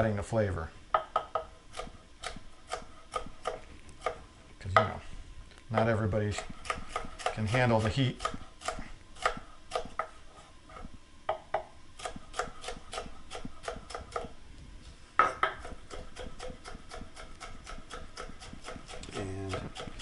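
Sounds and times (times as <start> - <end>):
knife chopping on wooden board: 1.0 - 5.0, 5.8 - 10.2, 11.3 - 14.3, 15.2 - 20.0.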